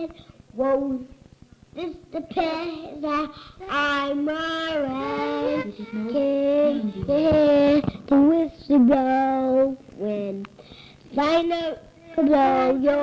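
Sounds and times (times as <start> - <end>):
boy singing in a gravelly voice: 3.1 - 10.5, 11.2 - 13.0.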